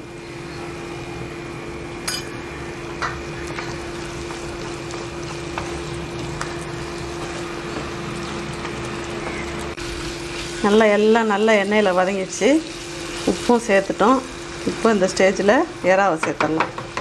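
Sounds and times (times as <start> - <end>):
steady hum: 0.0 - 16.4
spatula stirring in frying pan: 3.1 - 9.4
spatula tapping pan: 16.2 - 17.0.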